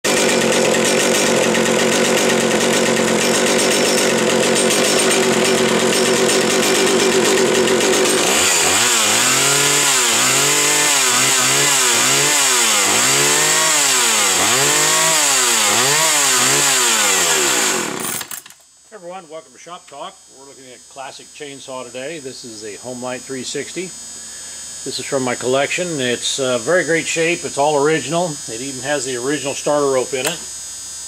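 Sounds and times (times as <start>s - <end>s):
chainsaw engine revving: 0.0s - 18.5s.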